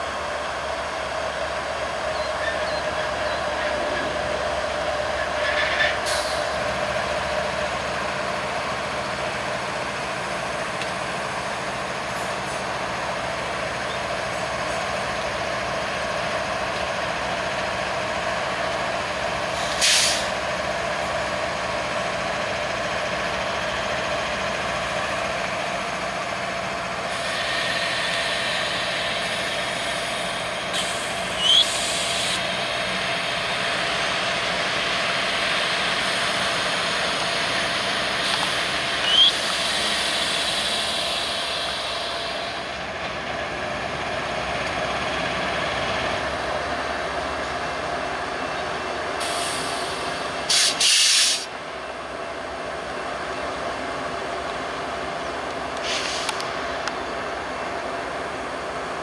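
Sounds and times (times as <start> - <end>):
diesel locomotive engines droning: 0.0 - 59.0
air hissing: 19.6 - 20.4, 27.1 - 32.6, 37.7 - 42.7, 49.2 - 51.5, 55.8 - 56.4.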